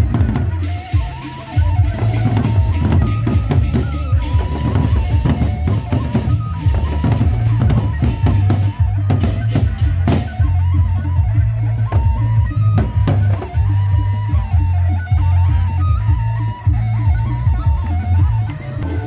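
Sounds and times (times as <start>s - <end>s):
barrel drums beaten with sticks: 0.0s - 14.8s
high wavering melody: 0.0s - 19.0s.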